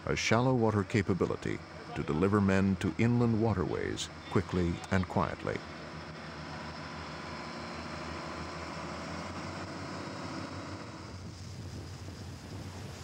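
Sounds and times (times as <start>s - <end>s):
boat engine drone: 0.0s - 13.0s
rushing water and spray: 7.1s - 13.0s.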